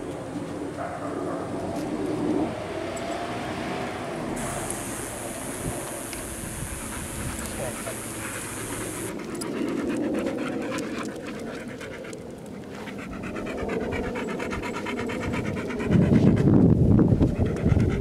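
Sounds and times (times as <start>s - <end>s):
dog panting: 4.4s - 18.0s.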